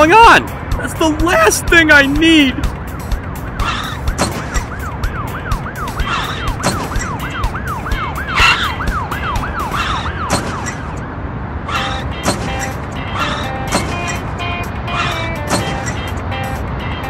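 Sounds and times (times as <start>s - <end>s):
background music with steady beat: 0.0s - 9.8s, 12.0s - 17.0s
siren in fast yelp: 3.7s - 10.4s, 11.7s - 12.1s, 13.1s - 13.6s, 14.8s - 15.4s.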